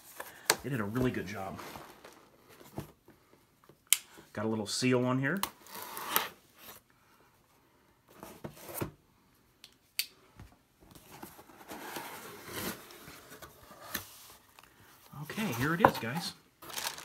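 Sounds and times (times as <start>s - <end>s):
cardboard rustling and scraping: 0.0s - 3.0s, 10.9s - 17.0s.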